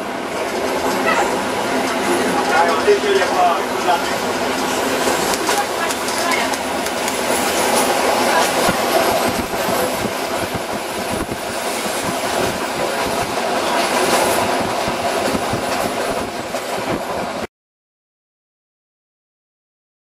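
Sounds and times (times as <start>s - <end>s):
train rumbling on track: 0.0s - 17.5s
wheels clicking over rail joints: 0.4s - 17.0s.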